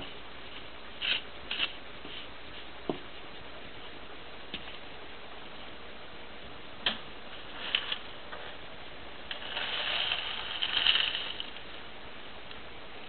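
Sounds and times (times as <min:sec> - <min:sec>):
scraping and rustling on paper plate: 0:07.4 - 0:08.6.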